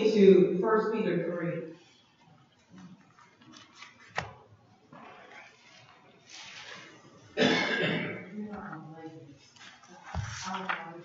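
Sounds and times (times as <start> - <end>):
pages being turned: 2.8 - 7.2, 9.4 - 11.0.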